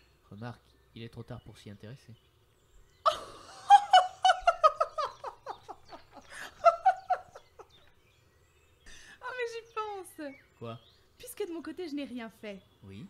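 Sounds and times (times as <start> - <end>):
high-pitched laughter: 3.1 - 7.9.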